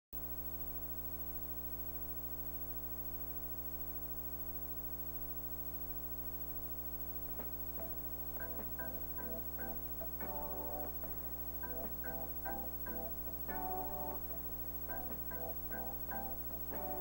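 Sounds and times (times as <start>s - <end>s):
low hum with even tones: 0.2s - 17.0s
plucked background music: 7.8s - 17.0s.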